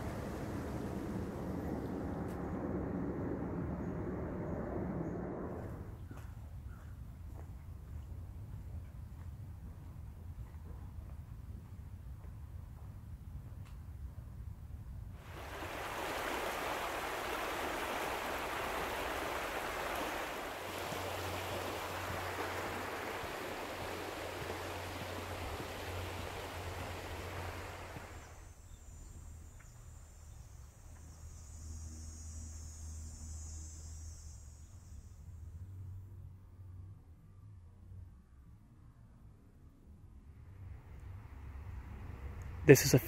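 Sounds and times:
creek flowing over gravel: 15.2s - 28.3s.

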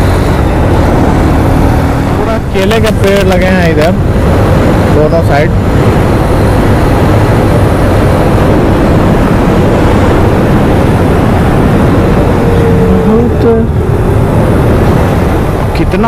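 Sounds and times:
motorcycle engine running: 0.0s - 15.8s
wind rushing over microphone: 0.0s - 16.0s.

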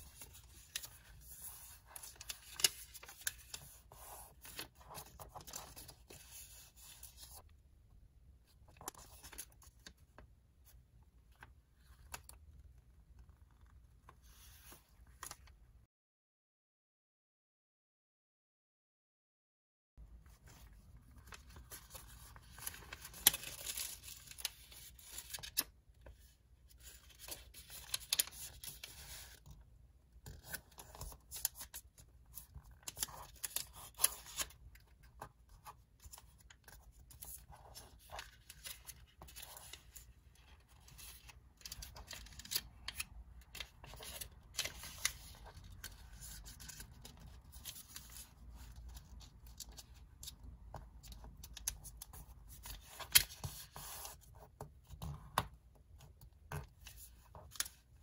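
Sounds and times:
paper crinkling while folded: 0.0s - 7.4s, 20.2s - 29.6s, 30.2s - 54.3s.

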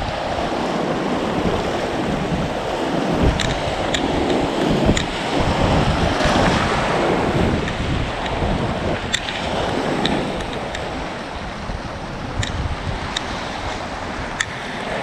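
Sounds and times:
waves breaking against rocks: 0.0s - 15.0s
wind buffeting microphone: 0.0s - 15.0s
faint light ticks: 3.4s - 5.2s, 12.4s - 13.3s, 14.4s - 14.6s.

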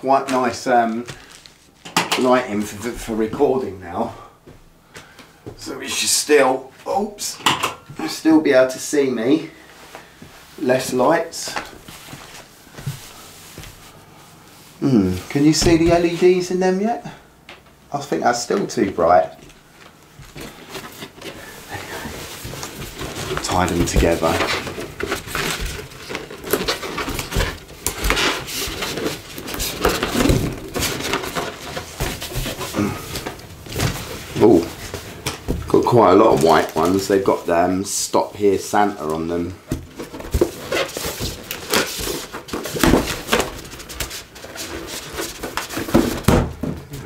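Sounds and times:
balloons rubbing together: 20.4s - 37.7s.

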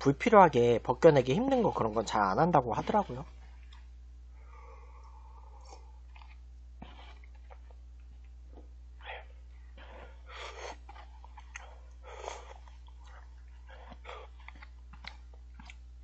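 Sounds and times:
steady low hum: 0.0s - 16.0s
chewing clicks: 5.0s - 8.4s, 10.7s - 15.8s.

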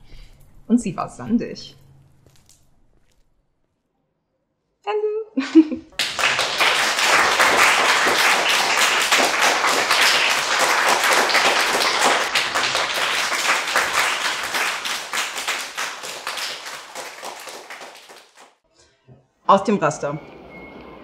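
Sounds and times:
audience applauding: 5.9s - 18.6s.

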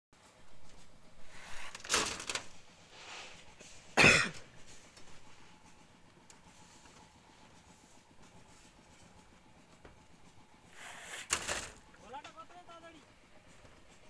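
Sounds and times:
person coughing: 4.0s - 4.4s.

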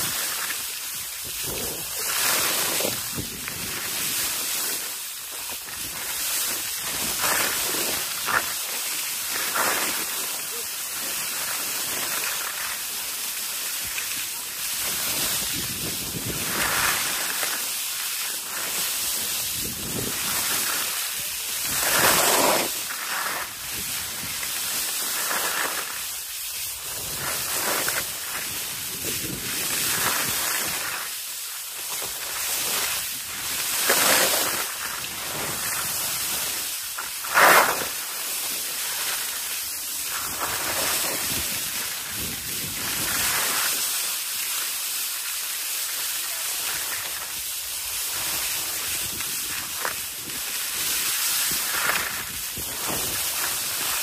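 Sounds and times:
skis scraping over snow: 0.0s - 54.0s
wind rushing on microphone: 1.2s - 4.3s, 14.8s - 17.2s, 19.2s - 22.7s, 26.7s - 31.0s, 40.2s - 43.4s.

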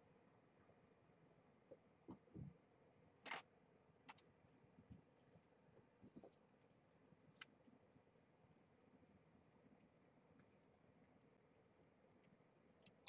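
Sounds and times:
faint clicks and ticks: 1.7s - 2.6s, 3.2s - 9.0s, 9.6s - 13.0s.

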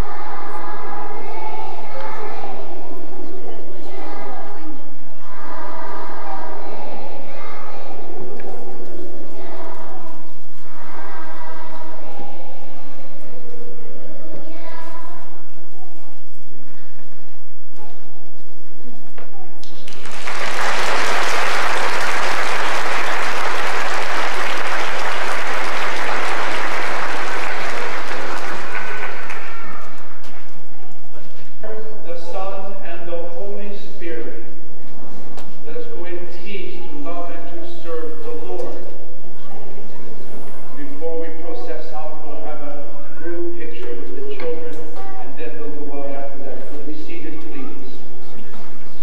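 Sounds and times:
children's choir singing: 0.0s - 16.4s, 19.9s - 30.7s
congregation applauding: 19.7s - 30.4s.

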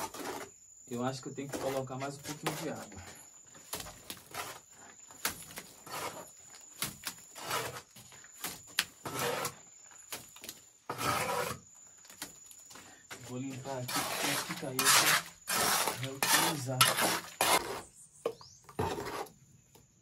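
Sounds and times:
trowel scraping mortar: 0.0s - 4.9s, 5.5s - 8.0s, 8.8s - 9.7s, 10.9s - 11.6s, 13.2s - 18.0s, 18.7s - 19.4s.

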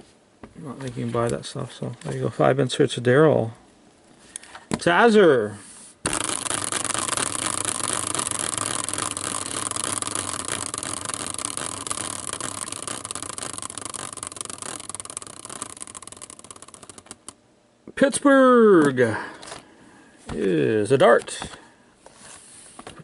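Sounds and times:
prize wheel whirring and ticking: 6.1s - 17.4s.

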